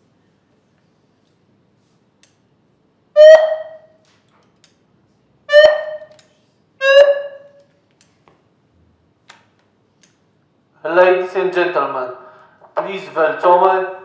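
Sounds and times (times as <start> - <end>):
megaphone tones: 3.2 - 3.9, 5.5 - 6.1, 6.8 - 7.6.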